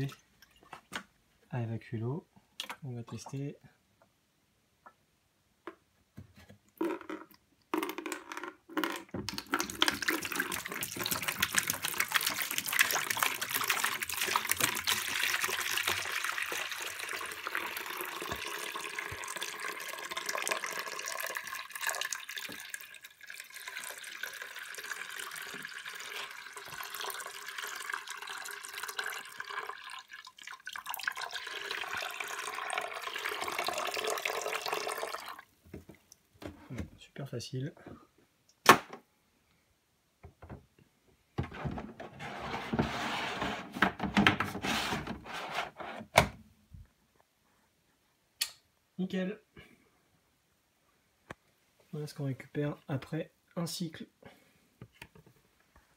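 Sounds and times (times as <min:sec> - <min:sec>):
water pouring into plastic bucket: 0:06.8 - 0:35.5
water splashes: 0:09.3 - 0:19.4.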